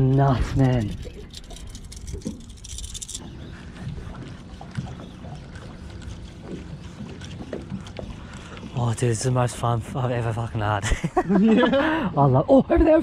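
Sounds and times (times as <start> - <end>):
rattle of light ticks: 0.0 - 5.1
water lapping around boat: 0.0 - 13.0.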